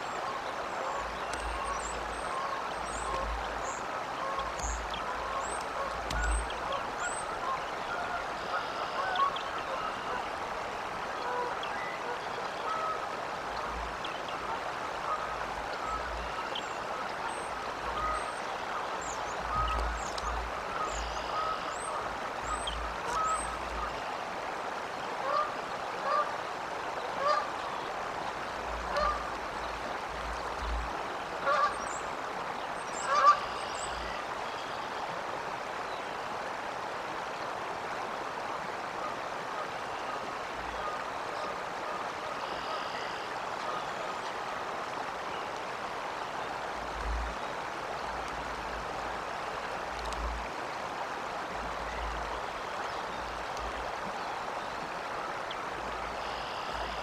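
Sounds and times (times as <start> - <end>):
flowing water: 0.0 - 57.0
honking bird calls: 33.0 - 34.1.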